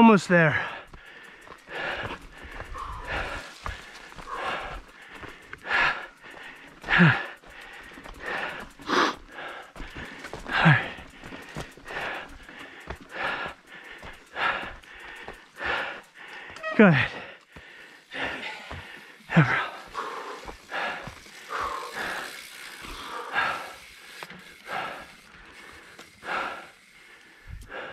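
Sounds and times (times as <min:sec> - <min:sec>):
person breathing hard: 0:00.5 - 0:27.9
voiced exhales: 0:12.0 - 0:27.9.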